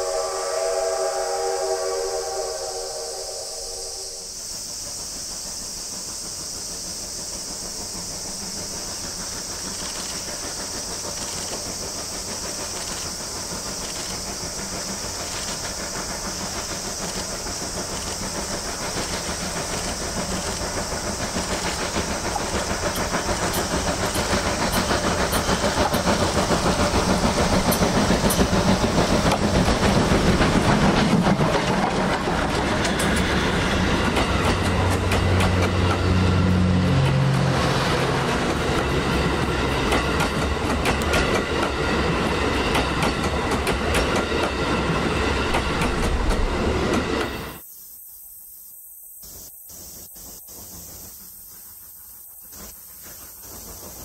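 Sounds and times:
steam locomotive: 0.0 - 54.0
train wheels clacking over rail joints: 4.8 - 47.6.

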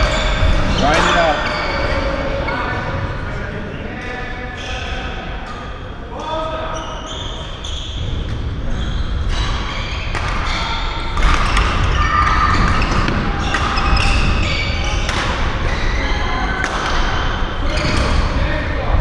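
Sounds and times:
shoes squeaking on court: 0.0 - 1.8.

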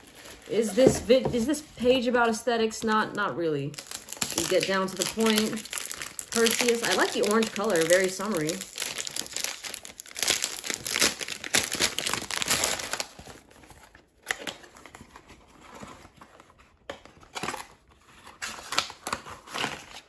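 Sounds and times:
plastic wrapping crinkling: 0.0 - 3.0, 3.6 - 16.6.

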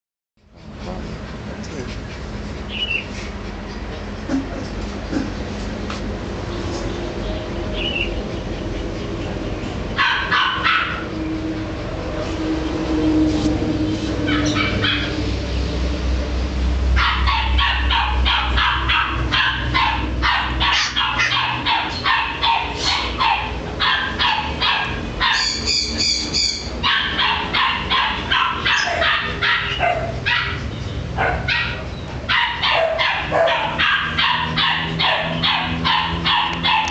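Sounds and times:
puppy whining: 2.0 - 5.6
puppy yapping: 10.0 - 11.2, 14.1 - 15.2, 17.0 - 36.9.

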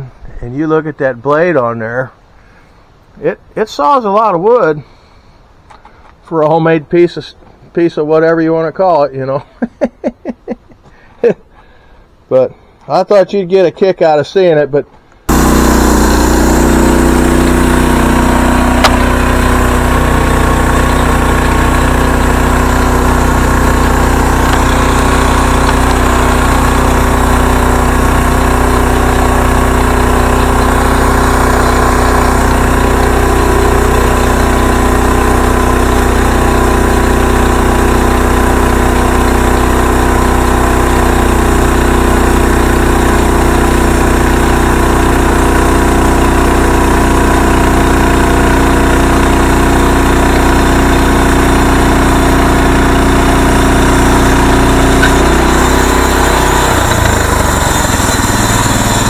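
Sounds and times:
band saw cutting log: 15.3 - 59.0
gas engine running steadily: 15.3 - 59.0.

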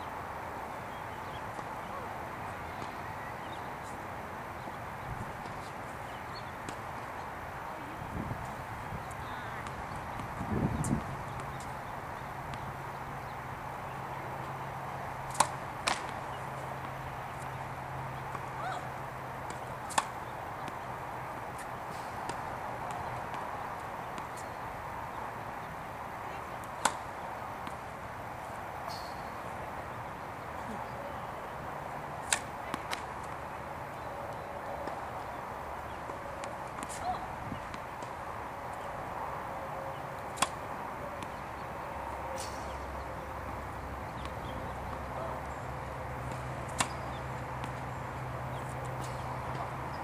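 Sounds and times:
outdoor background noise: 0.0 - 50.0
tennis racket hitting ball: 15.2 - 24.6, 26.6 - 27.8, 31.6 - 33.4, 36.0 - 38.1, 40.2 - 41.6, 46.1 - 49.6.

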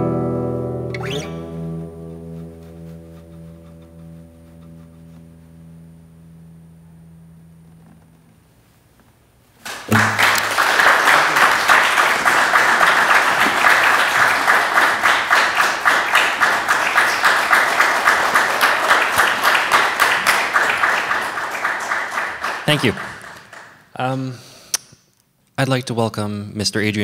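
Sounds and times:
audience applause: 9.6 - 23.9.

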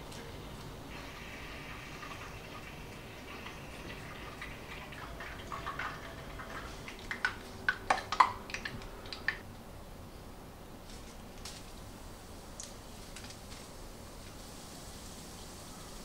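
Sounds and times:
hot oil popping: 0.9 - 9.4.

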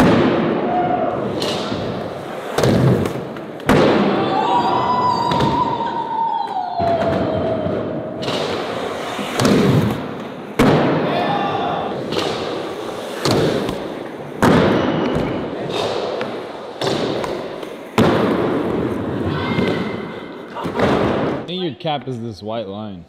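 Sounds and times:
skateboard rolling: 0.7 - 21.4
skateboard popping and landing: 1.2 - 4.2, 12.0 - 21.5.

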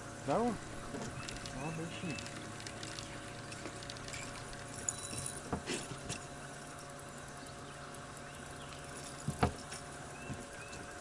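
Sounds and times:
steady low hum: 0.0 - 11.0
clicks and knocks of gear: 1.0 - 6.3.

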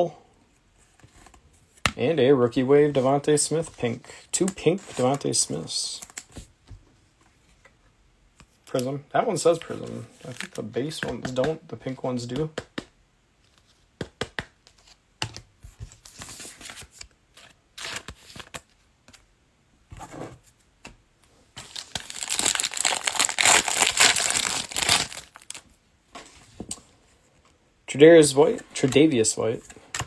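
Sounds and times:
card pack wrapper crinkling: 21.6 - 25.6.

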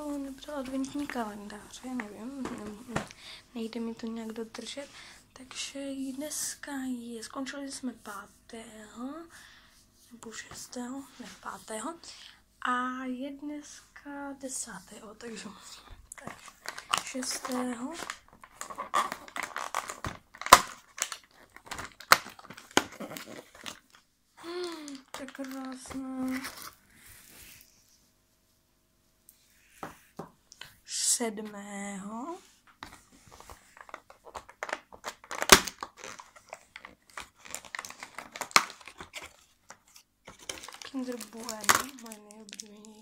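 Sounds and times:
cardboard tearing and clicking: 16.9 - 23.9, 34.0 - 42.6
cardboard snapping: 34.6 - 36.2.

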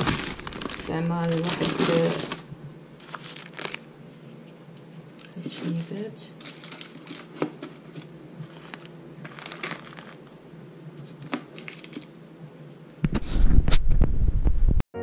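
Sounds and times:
paper rustling and crinkling: 0.0 - 4.5, 5.1 - 10.3, 10.9 - 12.1.

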